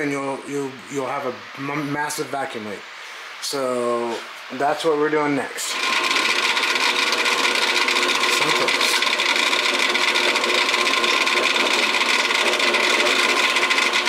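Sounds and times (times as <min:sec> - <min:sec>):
drill press whining: 0:05.6 - 0:14.0.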